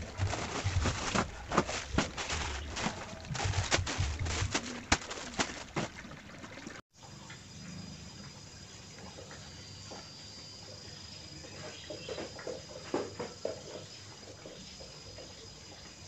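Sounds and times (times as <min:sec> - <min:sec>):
footsteps: 0:00.0 - 0:06.1.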